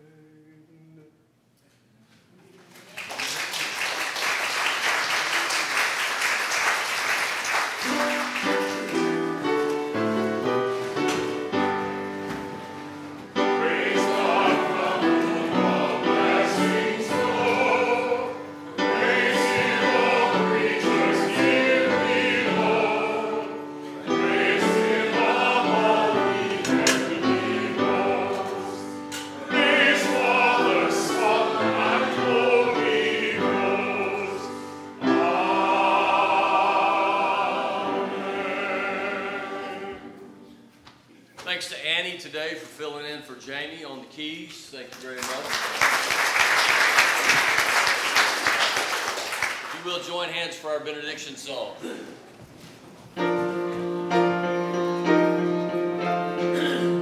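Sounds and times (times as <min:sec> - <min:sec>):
applause: 0:02.6 - 0:09.1, 0:44.9 - 0:50.0
keyboard accompaniment: 0:07.7 - 0:41.1, 0:53.1 - 0:57.0
choir singing: 0:13.2 - 0:40.7.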